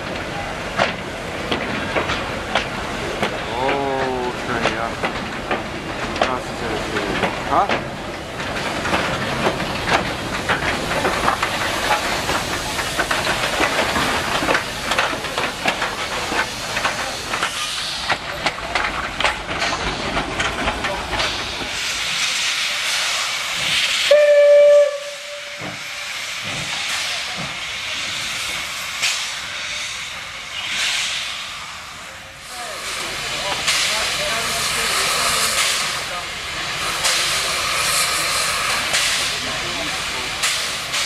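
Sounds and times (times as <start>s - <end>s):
steam hissing: 0.0s - 41.0s
steam locomotive chuffing: 0.0s - 41.0s
steam whistle: 24.1s - 25.8s.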